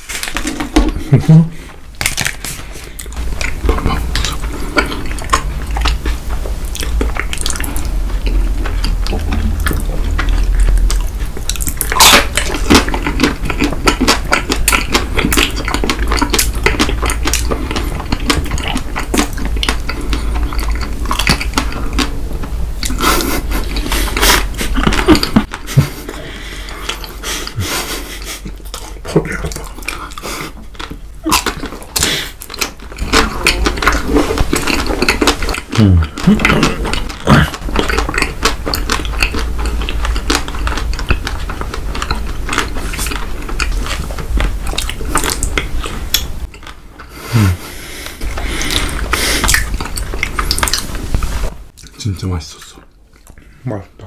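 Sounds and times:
chewing and crunching: 0.0 - 53.6
low rumble: 3.1 - 12.6.

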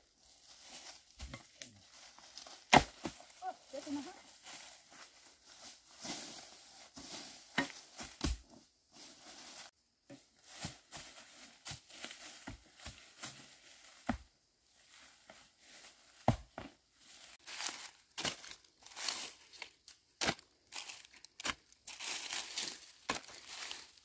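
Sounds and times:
dry leaves crackling underfoot: 0.0 - 8.2, 17.0 - 24.0
hoes chopping into earth: 2.4 - 3.2, 7.5 - 8.4, 16.2 - 16.7.

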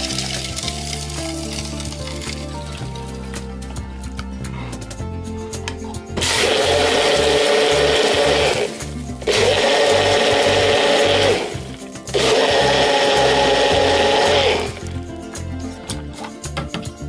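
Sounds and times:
blender motor whirring: 6.2 - 15.0.

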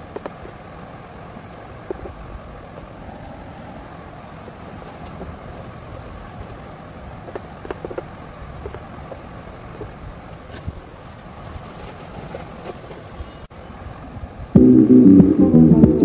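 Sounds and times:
low background rumble: 14.0 - 16.0.

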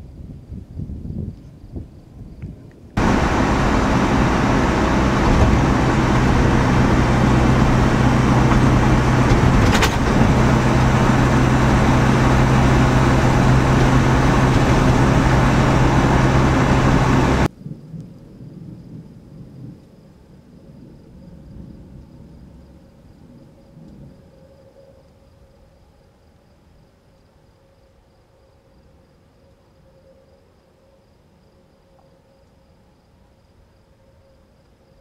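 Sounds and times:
loud even noise: 3.0 - 17.5
low engine hum: 3.0 - 17.5.

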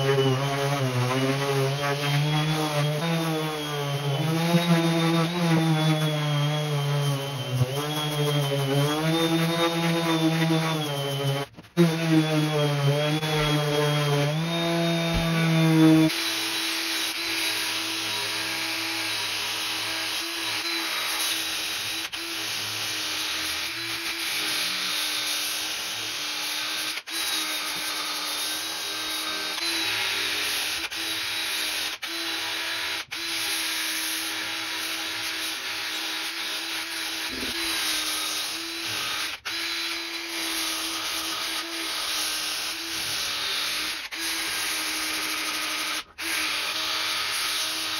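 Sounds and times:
orbital sander running: 0.0 - 25.5
drill spinning sanding drum: 0.0 - 47.9.

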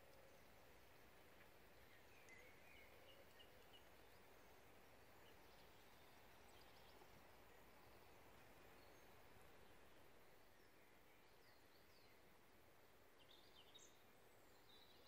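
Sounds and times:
faint bird chirps: 1.7 - 12.2.

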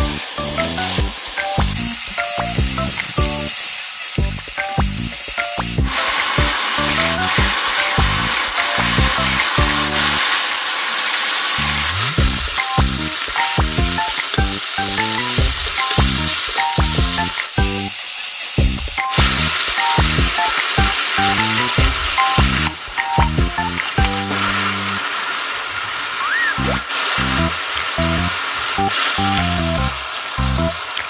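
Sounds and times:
background music with light beat: 0.0 - 3.6, 4.2 - 10.2, 12.2 - 17.9, 18.6 - 24.9
chicken sizzling in a pan: 0.0 - 31.0.

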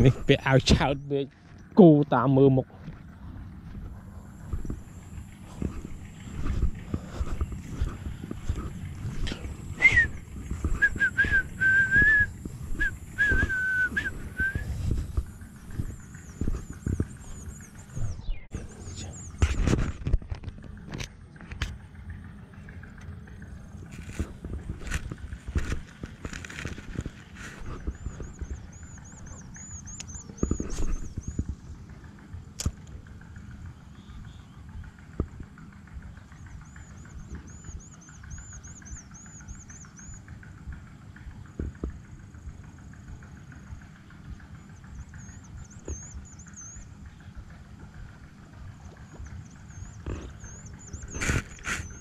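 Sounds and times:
wind rumbling on microphone: 2.7 - 52.0
footsteps swishing through grass: 4.5 - 17.4
person whistling a tune: 9.8 - 14.7
high chirping call: 27.0 - 31.5
sharp click: 32.6 - 32.9.

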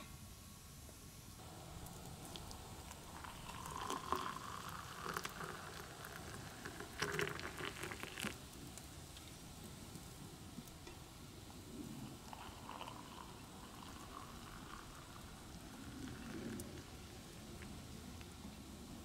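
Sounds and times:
hot water pouring into a mug: 1.4 - 8.9, 12.0 - 17.5.

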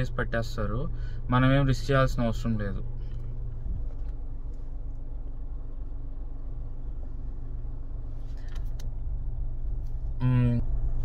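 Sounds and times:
car engine rumble from inside cabin: 0.0 - 11.0
faint steady hum: 0.0 - 11.0.

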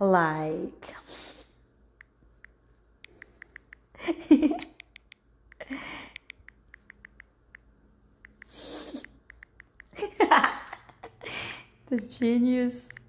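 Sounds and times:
phone keyboard clicks: 2.0 - 3.9, 4.6 - 10.0.

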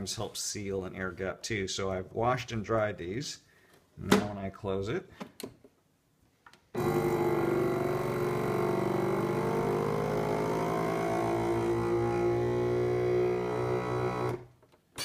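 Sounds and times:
vacuum sealer pump motor: 6.8 - 14.4.

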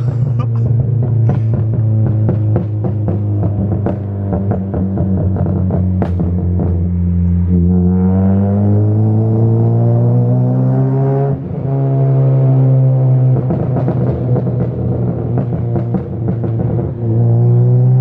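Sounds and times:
exhaust popping: 0.0 - 7.9, 12.7 - 18.0
car engine accelerating: 0.0 - 18.0.

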